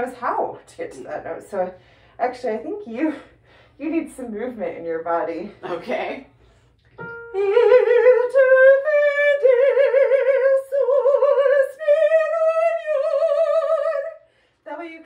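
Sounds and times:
woman singing with vibrato: 7.3 - 15.0.

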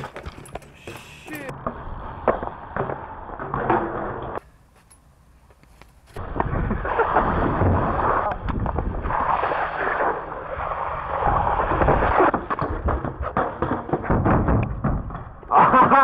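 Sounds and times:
bike tyres rolling on asphalt: 0.0 - 0.8, 5.4 - 15.5.

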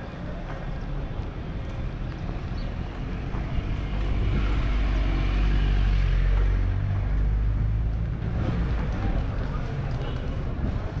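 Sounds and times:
vehicle engine passing by: 3.4 - 8.9.

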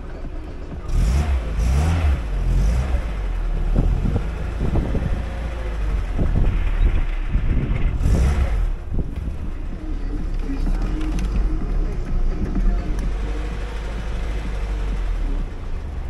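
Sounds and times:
car engine at low revs: 0.0 - 16.0.

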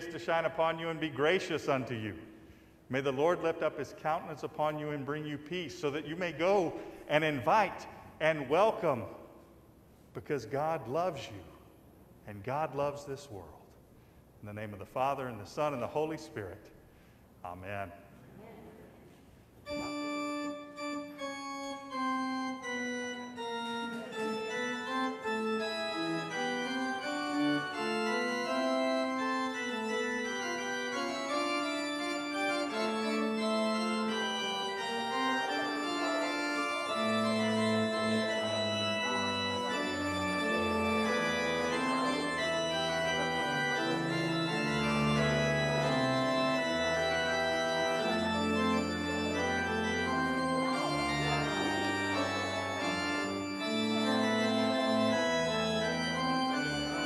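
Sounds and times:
pipe organ chords: 0.0 - 11.4, 19.6 - 57.0
deep organ pedal bass notes: 19.7 - 57.0.

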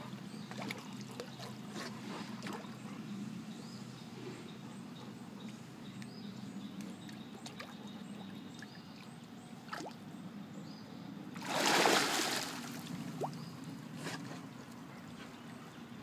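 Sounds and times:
dog splashing in water: 11.4 - 13.4
water lapping: 11.4 - 15.8.

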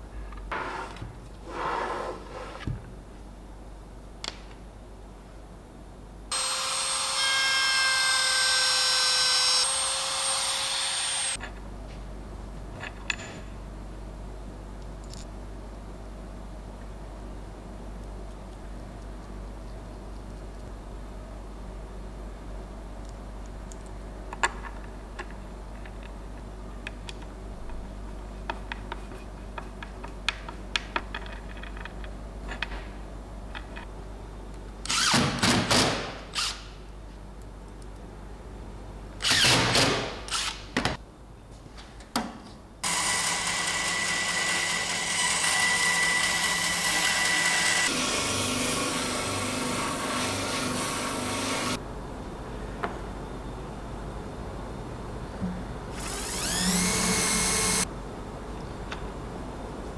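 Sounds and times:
spindle sander running: 6.3 - 11.4, 42.8 - 51.8
cordless drill driving screws: 56.0 - 57.8.

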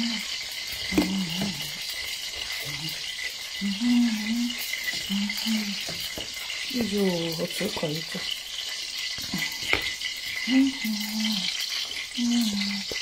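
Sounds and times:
batter beaten in a bowl: 0.0 - 10.8
hot oil sizzling: 0.0 - 13.0
person humming: 0.9 - 1.8, 2.6 - 3.0, 3.6 - 5.9, 10.4 - 13.0.

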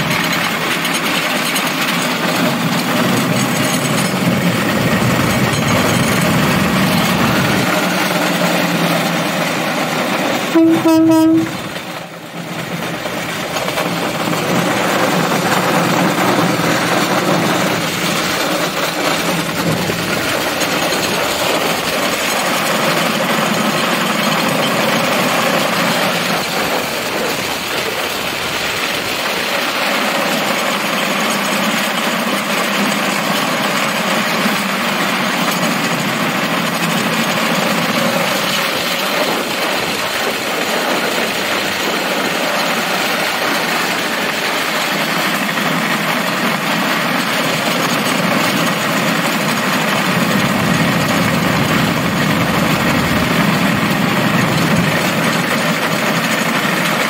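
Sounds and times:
rail cart running on track: 0.0 - 57.0
horn blast: 10.5 - 11.7.

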